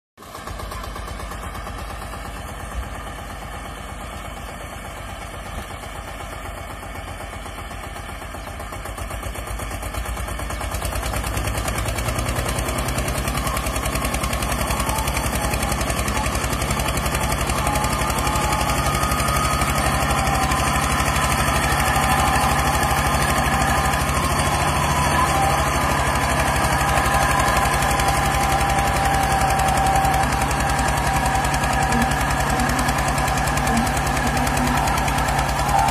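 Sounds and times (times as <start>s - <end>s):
car engine under heavy load: 0.2s - 35.9s
tractor diesel engine chugging: 0.2s - 35.9s.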